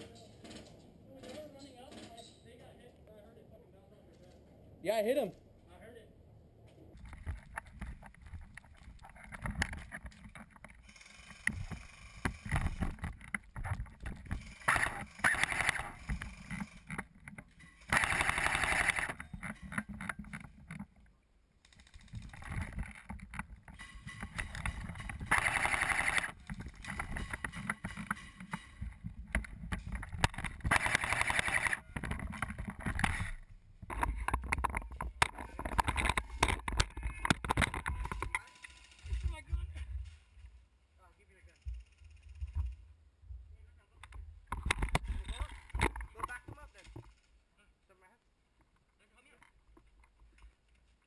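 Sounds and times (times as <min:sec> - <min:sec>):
gear rattling and clicking: 0:07.0 - 0:40.2, 0:44.0 - 0:47.4
footsteps: 0:22.1 - 0:40.7.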